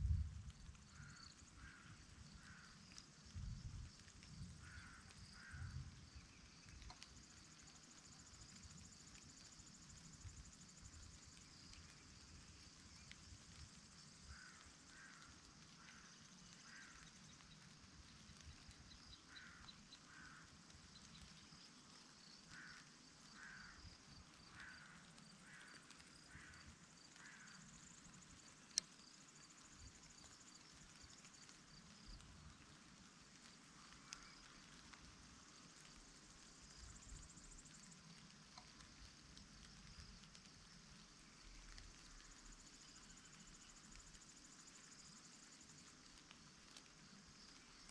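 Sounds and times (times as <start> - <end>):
low wind rumble: 0.0 - 1.7
insects chirring: 0.0 - 47.9.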